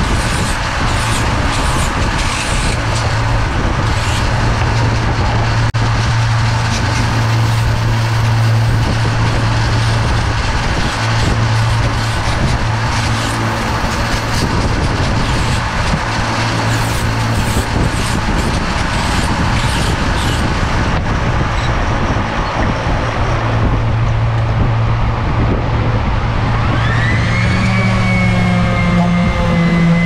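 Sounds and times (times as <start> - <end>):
orbital sander whining: 26.6 - 30.0.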